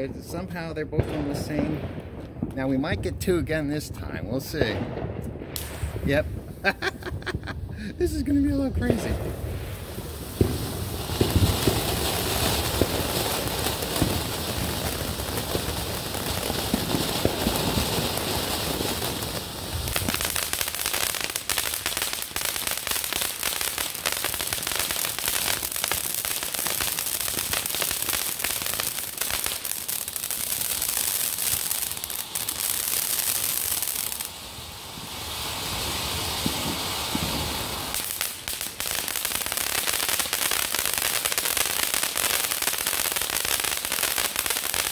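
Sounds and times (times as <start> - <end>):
fireworks sparks hissing and crackling: 0.0 - 44.9.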